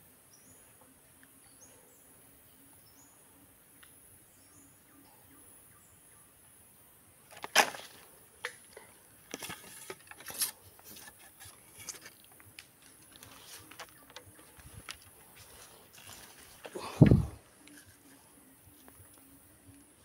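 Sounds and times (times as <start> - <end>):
faint bird chirps: 0.2 - 6.9
handling knocks and rustles: 7.3 - 8.6, 9.2 - 18.1.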